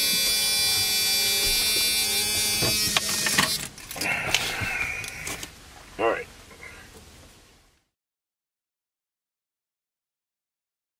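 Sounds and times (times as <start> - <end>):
car key warning buzzer: 0.0 - 3.7.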